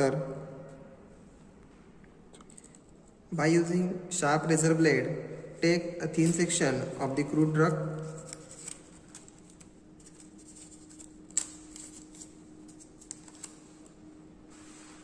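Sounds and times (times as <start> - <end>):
faint steady hum: 0.0 - 15.0
paper crinkling: 8.0 - 14.0.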